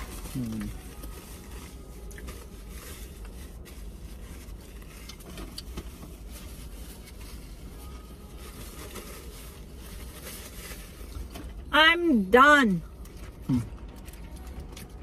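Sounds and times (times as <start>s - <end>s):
rustling: 0.0s - 11.6s.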